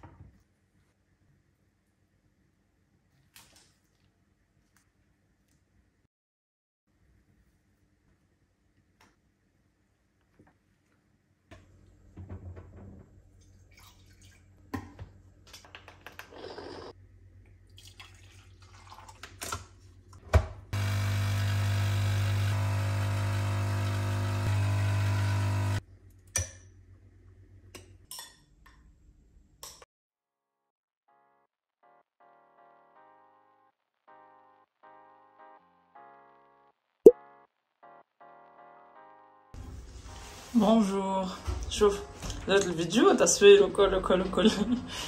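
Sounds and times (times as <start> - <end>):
espresso pump buzzing: 20.8 - 25.8.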